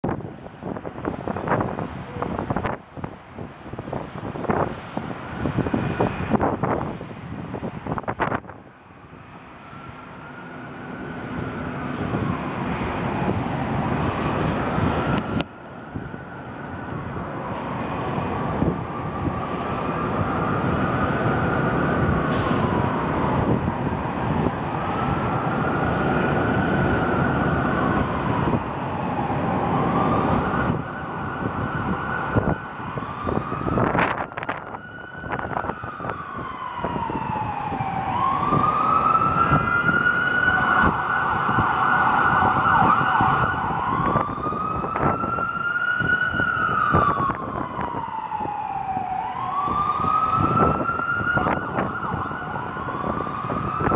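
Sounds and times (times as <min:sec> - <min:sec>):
emergency vehicle sirens wailing: 0:00.0 - 0:53.9
wind rumbling on microphone: 0:00.0 - 0:53.9.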